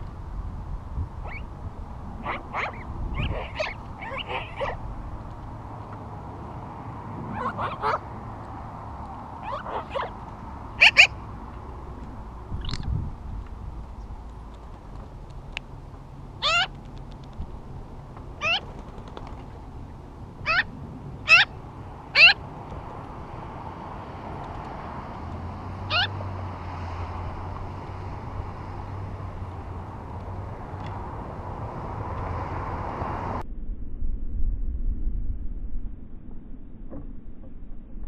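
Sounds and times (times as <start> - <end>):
steady outdoor hiss: 0.0 - 33.4
magpie calls: 1.2 - 1.5, 2.3 - 4.8, 9.4 - 10.2, 10.8 - 11.2, 16.4 - 16.7, 18.4 - 18.7, 20.4 - 22.4, 25.9 - 26.2.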